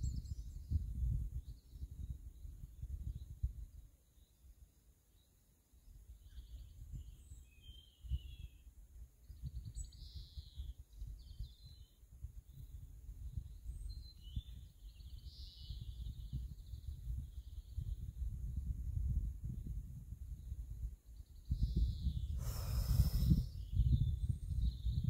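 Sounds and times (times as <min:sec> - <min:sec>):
wind rumbling on microphone: 0:00.0 - 0:04.3, 0:05.9 - 0:25.0
birds singing: 0:05.1 - 0:18.2, 0:20.4 - 0:25.0.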